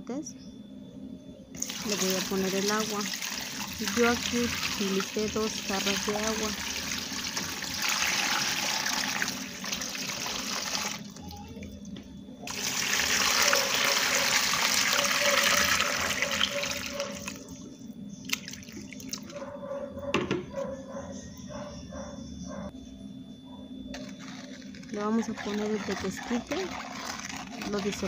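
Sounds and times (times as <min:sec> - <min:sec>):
water pouring into a metal pot: 0:01.6 - 0:11.1, 0:12.5 - 0:17.4, 0:25.8 - 0:28.0.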